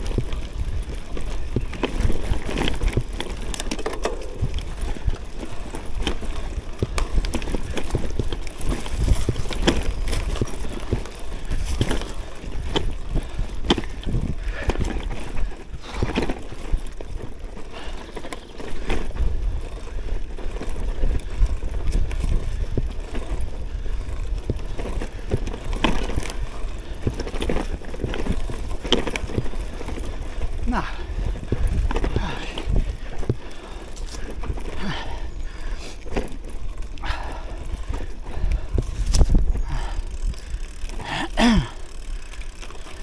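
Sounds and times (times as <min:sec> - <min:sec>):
bike knocking and rattling: 0:00.0 - 0:43.0
bike tyres rumbling on dirt: 0:00.0 - 0:43.0.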